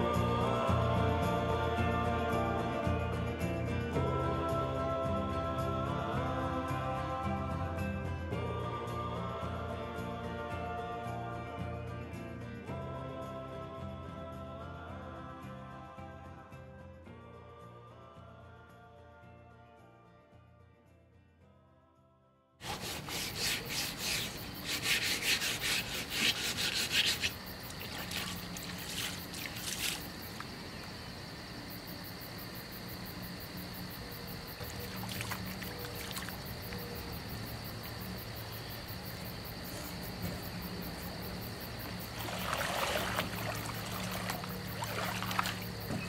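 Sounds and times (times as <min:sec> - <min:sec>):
plastic kayak scraping over sand: 0:22.6 - 0:30.1
rough scraping and rubbing: 0:22.6 - 0:30.2
high insect drone: 0:22.6 - 0:46.0.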